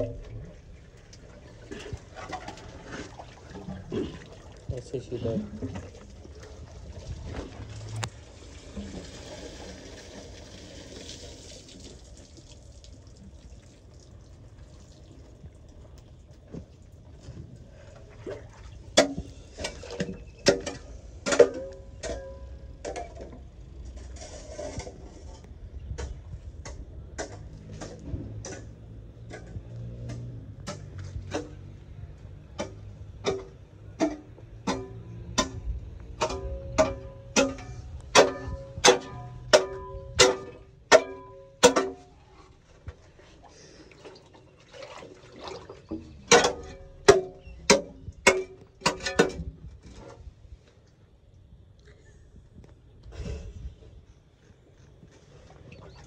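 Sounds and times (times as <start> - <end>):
sewage sloshing and scraping: 0.0 - 50.8, 54.8 - 56.0
steel bar clanking in drain: 36.2 - 42.1, 46.2 - 49.5.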